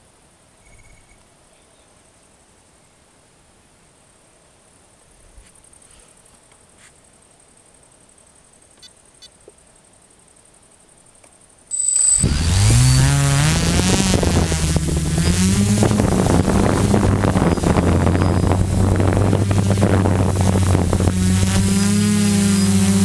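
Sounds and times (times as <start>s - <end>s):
short high beep: 11.7s - 12.3s
drone motors buzzing: 11.7s - 23.0s.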